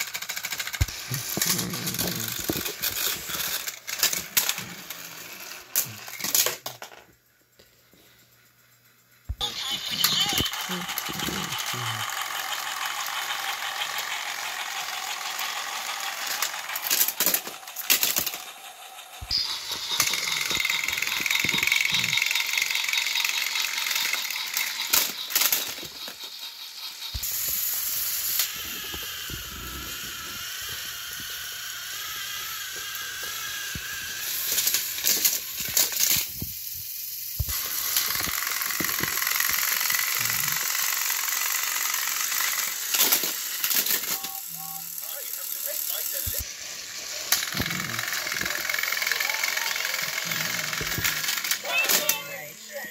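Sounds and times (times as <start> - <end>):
gears grinding: 0.0 - 6.8, 9.3 - 52.9
sharp clicks and rattles: 0.0 - 7.2, 8.9 - 29.4, 32.7 - 46.5, 47.2 - 52.2
toy train motors whirring: 0.0 - 52.9.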